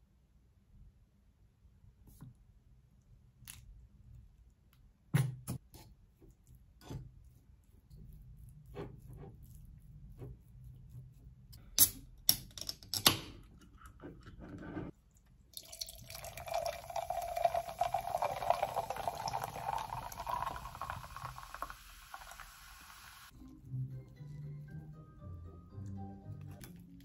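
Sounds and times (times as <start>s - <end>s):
soda fizzing pour into glass: 15.6s - 23.3s.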